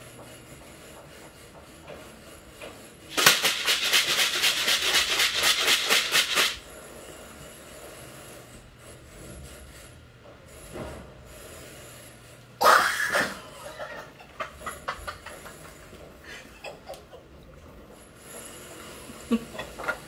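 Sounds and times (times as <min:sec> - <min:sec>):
plastic tub contents rattling: 0:03.1 - 0:06.6.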